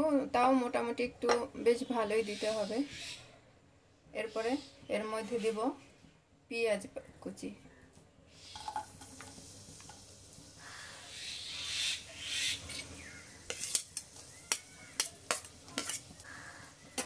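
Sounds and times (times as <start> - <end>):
onions sizzling in hot oil: 8.4 - 17.0
metal spoon tapping steel plate: 13.5 - 16.0.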